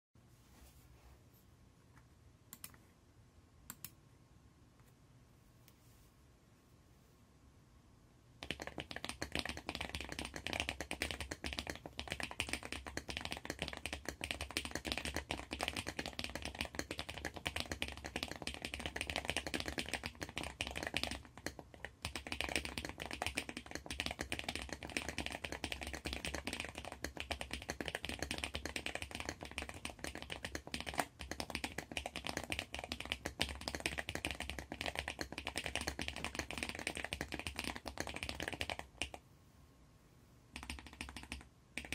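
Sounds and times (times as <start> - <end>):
mechanical keyboard typing: 8.4 - 39.2, 40.6 - 41.9.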